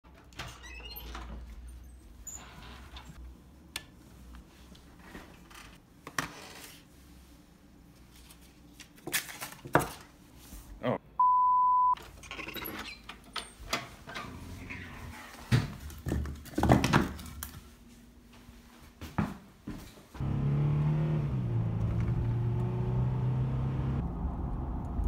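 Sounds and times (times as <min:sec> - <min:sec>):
steady high beep: 0:11.2 - 0:12.0
knocks and handling noises: 0:15.4 - 0:17.7.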